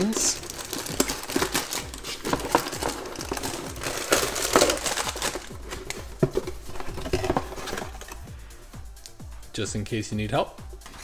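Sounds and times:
cardboard and paper rustling: 0.0 - 8.2.

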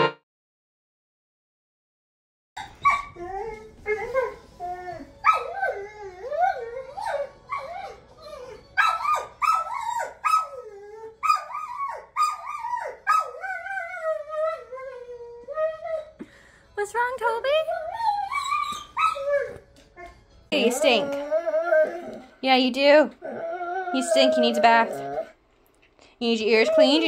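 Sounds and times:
dog whining and yipping: 2.6 - 16.1, 17.7 - 22.3, 23.2 - 25.3, 26.4 - 27.0.

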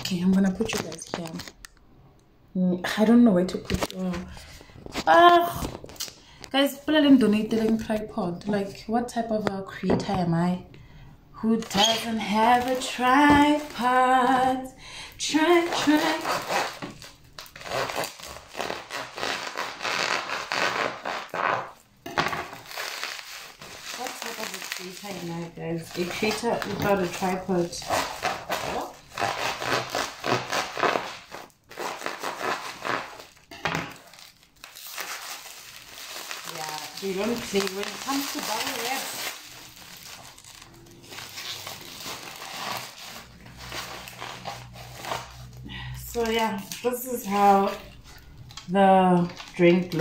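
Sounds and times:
plastic wrap crackling: 0.0 - 1.8, 2.9 - 9.8, 11.4 - 50.0
knife sawing through bubble wrap: 11.6 - 14.4, 15.3 - 21.8, 22.6 - 45.6.

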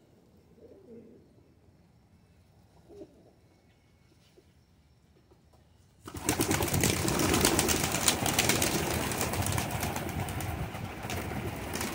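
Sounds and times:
pigeon wings flapping: 6.0 - 11.9.

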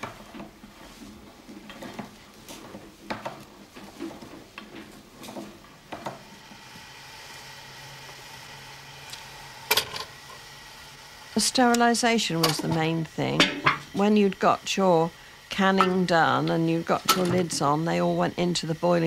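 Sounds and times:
hot water pot hissing: 0.0 - 19.0
can clanking into pot: 13.4 - 13.9.

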